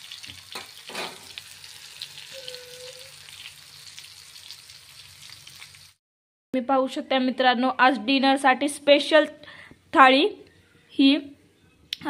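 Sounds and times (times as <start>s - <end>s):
fish sizzling in oil: 0.0s - 6.0s.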